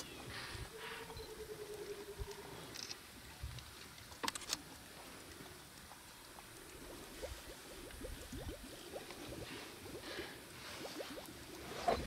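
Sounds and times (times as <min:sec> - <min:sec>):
leopard lapping water: 0:00.3 - 0:12.0
sharp clicks: 0:03.6 - 0:04.7.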